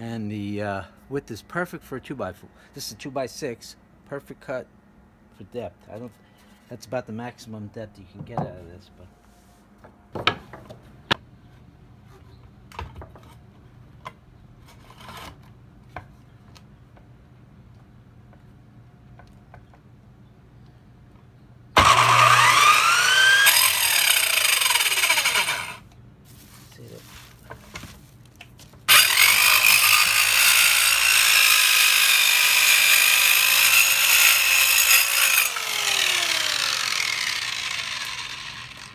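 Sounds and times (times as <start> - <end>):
wood and saw handling knocks: 9.8 - 10.8
circular saw cutting wood: 21.8 - 25.8, 28.9 - 38.9.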